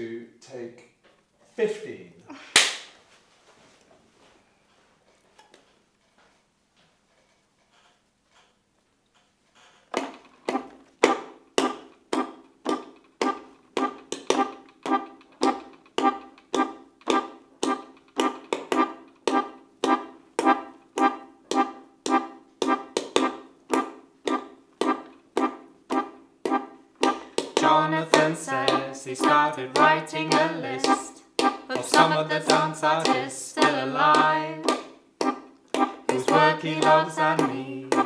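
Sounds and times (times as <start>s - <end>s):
hand percussion hits: 11.0s - 38.0s.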